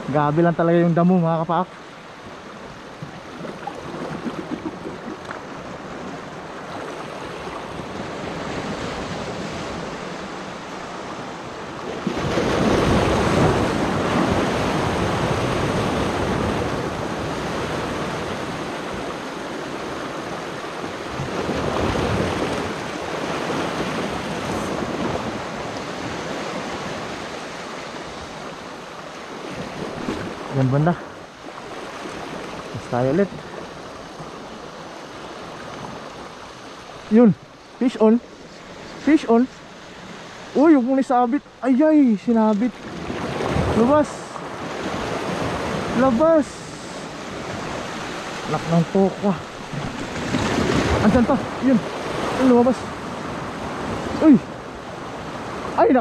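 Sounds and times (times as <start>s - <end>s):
sea waves washing over rocks: 0.0s - 56.0s.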